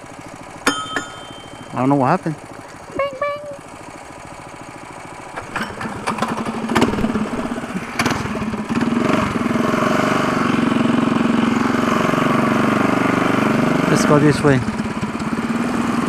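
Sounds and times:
small engine running and revving: 3.7s - 16.0s
pull-starter cord pulls: 5.3s - 8.5s.

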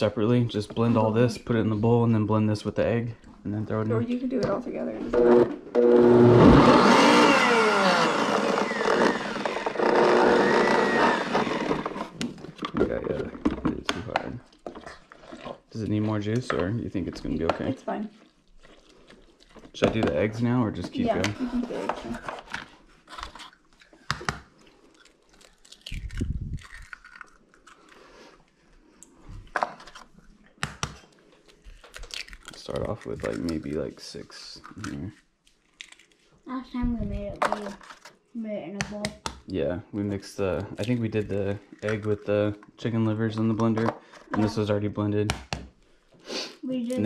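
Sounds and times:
blender running: 5.0s - 12.1s
eggshells cracking: 23.2s - 28.1s, 29.9s - 33.8s, 34.6s - 36.2s.

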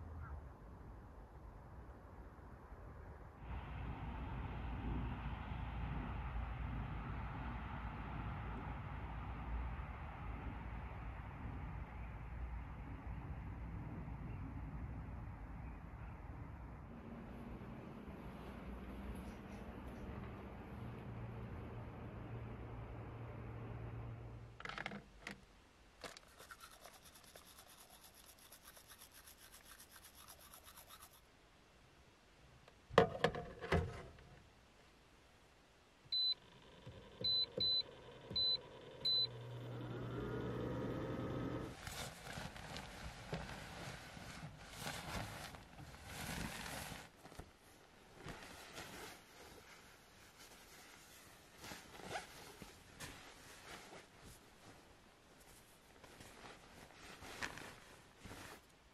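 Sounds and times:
rapid brushing strokes: 26.1s - 31.3s
nylon sleeping bag rustling: 41.6s - 58.9s.

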